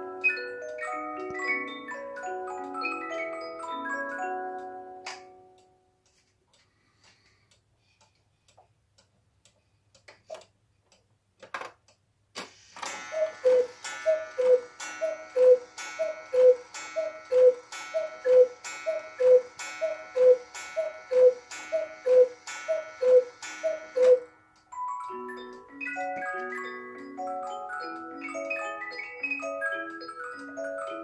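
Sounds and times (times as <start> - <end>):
clock ticking: 0.0 - 12.2, 12.8 - 31.0
clock mechanism clicks: 0.0 - 31.0
cuckoo bird and bellows clack: 12.9 - 24.2
two-note cuckoo calls: 12.9 - 24.3.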